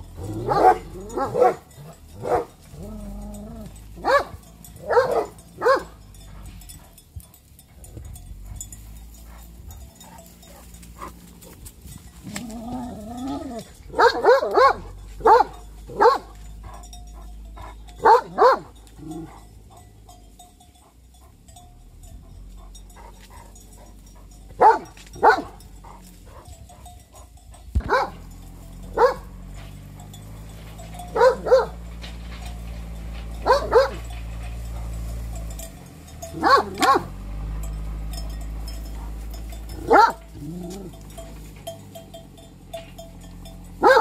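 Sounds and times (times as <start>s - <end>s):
dog barking: 0.3s - 2.6s, 4.0s - 6.0s, 13.9s - 16.4s, 17.6s - 18.8s, 24.6s - 26.0s, 27.3s - 28.3s, 28.9s - 29.4s, 31.1s - 31.8s, 33.4s - 34.1s, 36.4s - 37.2s, 39.8s - 40.2s, 43.8s - 44.0s.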